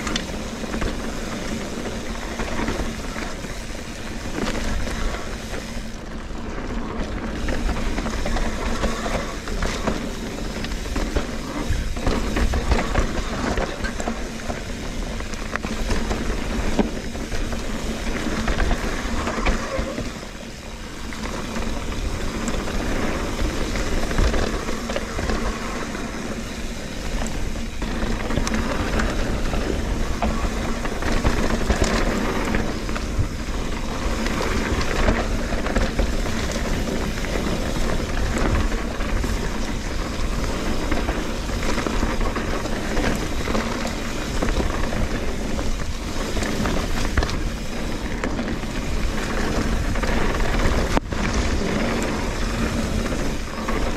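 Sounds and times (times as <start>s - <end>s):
bike rattling and clicking: 0.0s - 53.9s
bike tyres rolling on dirt: 0.0s - 53.9s
wind noise on microphone: 0.0s - 53.9s.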